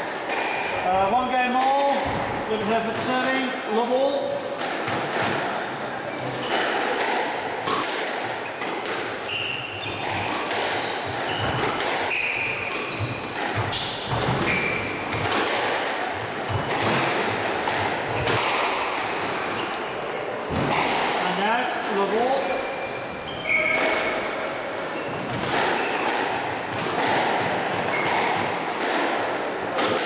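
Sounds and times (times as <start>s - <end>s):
squash ball smacking rackets and walls: 0.0s - 3.6s, 4.2s - 30.0s
shoes squeaking on wooden floor: 8.4s - 15.3s, 16.5s - 17.2s, 22.0s - 24.1s, 24.9s - 27.0s, 27.8s - 28.4s.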